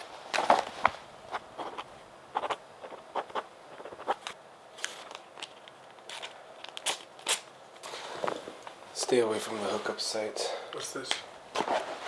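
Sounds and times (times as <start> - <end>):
rustling by hand: 0.0 - 8.8.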